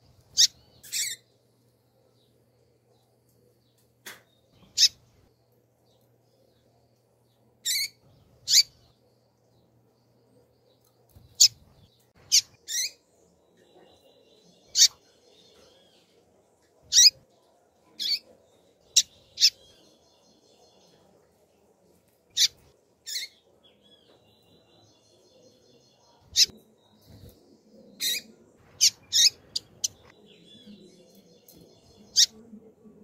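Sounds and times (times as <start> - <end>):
bird high peeps: 7.7 - 8.8, 28.0 - 30.1.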